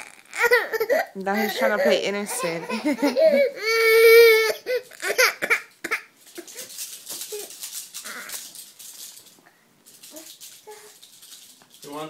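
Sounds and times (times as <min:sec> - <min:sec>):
baby crying: 0:00.0 - 0:06.5, 0:07.3 - 0:08.5.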